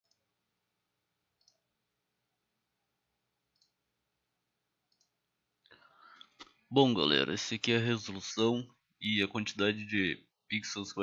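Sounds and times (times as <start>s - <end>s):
faint clicks: 1.4s - 1.6s, 3.5s - 3.8s, 4.9s - 6.6s.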